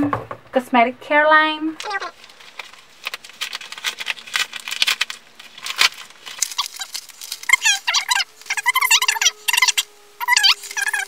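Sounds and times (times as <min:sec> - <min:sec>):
paper envelope tearing: 0:01.8 - 0:11.0
high repeated chirps: 0:07.5 - 0:11.0.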